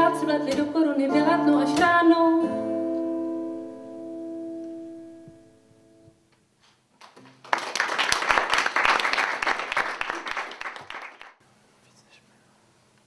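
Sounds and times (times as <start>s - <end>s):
audience applause: 7.0s - 11.4s.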